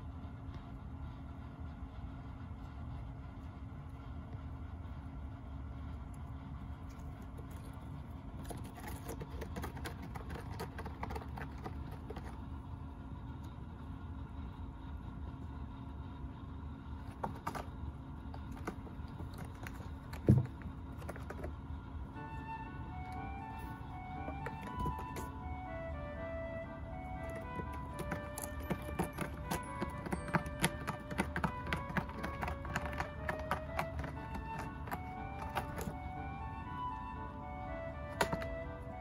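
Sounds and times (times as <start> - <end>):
claws scratching cardboard: 8.4 - 12.5, 17.0 - 21.6, 27.2 - 36.0.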